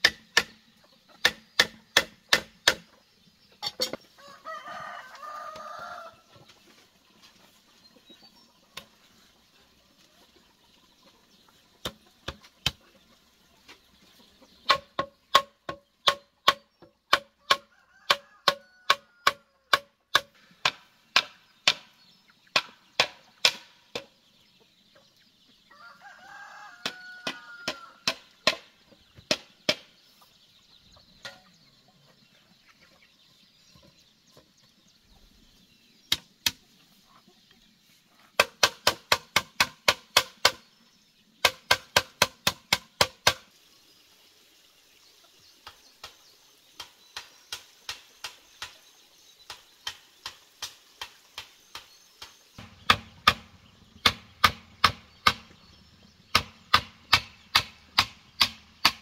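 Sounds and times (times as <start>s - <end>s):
knocks on hollow bamboo: 0.0s - 0.6s, 1.2s - 3.0s, 11.8s - 12.8s, 14.6s - 21.9s, 22.5s - 24.1s, 26.8s - 29.9s, 38.4s - 40.7s, 41.4s - 43.5s, 49.5s - 55.6s, 56.3s - 59.0s
rooster crowing: 4.2s - 6.2s, 17.6s - 19.5s, 25.7s - 28.1s.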